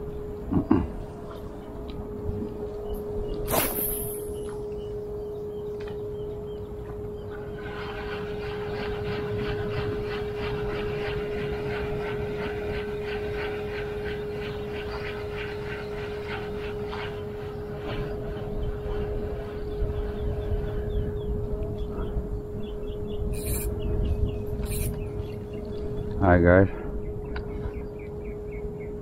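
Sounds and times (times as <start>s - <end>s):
steady hum: 0.0s - 29.0s
fishing reel ticking: 23.4s - 23.7s, 24.6s - 25.0s.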